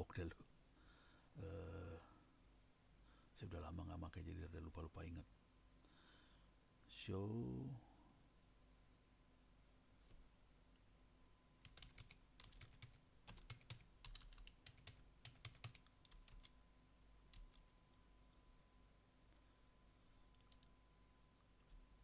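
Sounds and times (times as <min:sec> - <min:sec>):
faint typing on keyboard: 0:11.6 - 0:16.6, 0:17.2 - 0:18.5, 0:19.3 - 0:20.8, 0:21.4 - 0:22.0.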